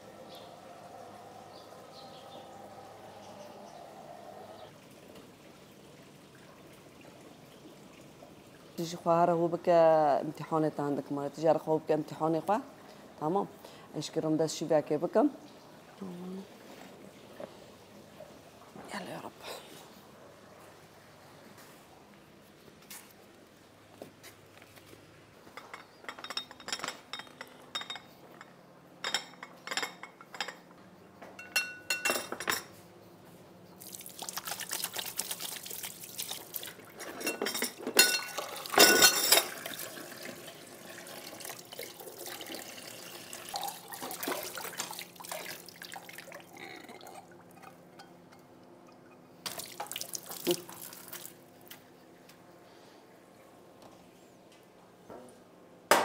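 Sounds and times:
water running and splashing: 33.8 - 37.5, 38.2 - 47.6, 49.4 - 51.4.

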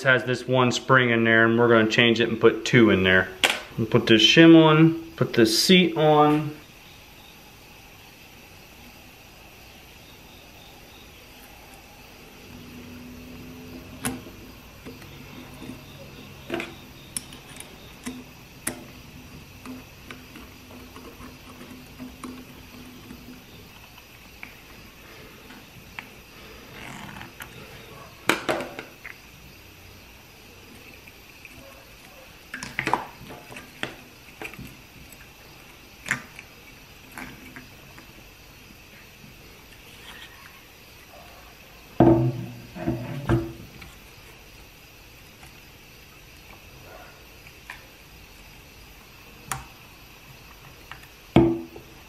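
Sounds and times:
steady low hum: 0.0 - 28.3.

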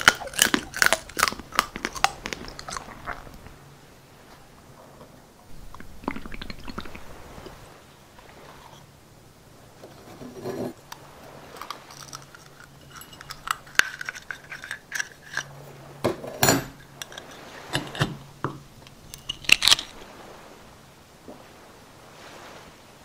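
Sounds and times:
blade scraping oyster shell: 11.5 - 15.6, 16.8 - 18.2, 18.8 - 20.0.

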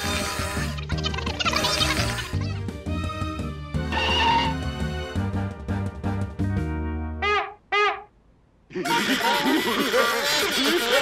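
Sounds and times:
cartoon background music: 0.0 - 8.0.

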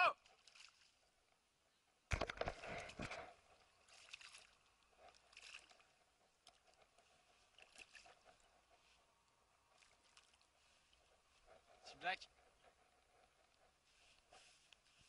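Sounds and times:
fish splashing at water surface: 2.1 - 5.9, 7.5 - 8.2.

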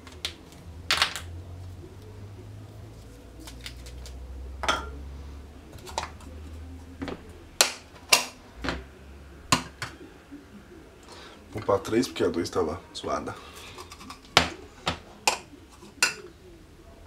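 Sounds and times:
low steady hum: 0.0 - 17.0
glassware clicks and knocks: 4.6 - 5.0.

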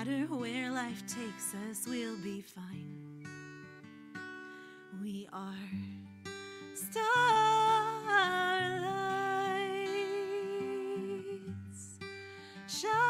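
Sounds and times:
acoustic guitar chords: 0.0 - 13.0
woman breathing in: 4.3 - 5.0, 12.1 - 12.7.

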